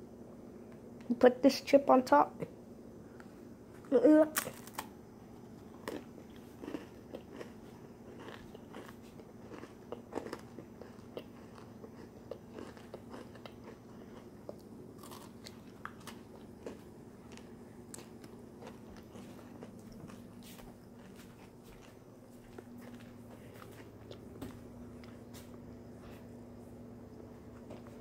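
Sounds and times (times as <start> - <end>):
person chewing crunchy food: 4.4 - 26.4.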